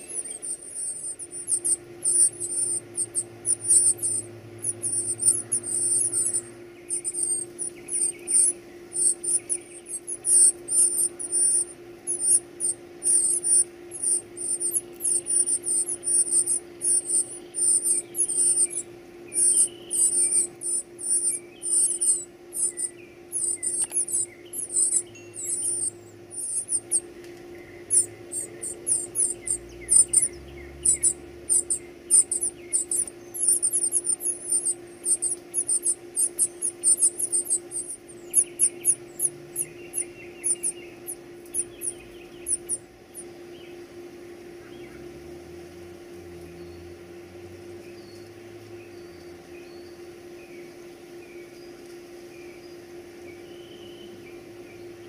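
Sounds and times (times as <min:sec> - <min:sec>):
nestlings begging calls: 0:00.0 - 0:43.7
steady low hum: 0:00.0 - 0:55.0.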